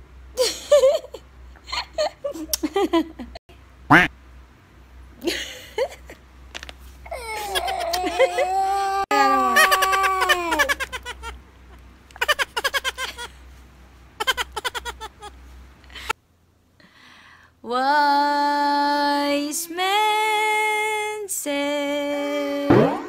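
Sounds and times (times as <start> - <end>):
woman singing long notes: 17.6 - 22.8.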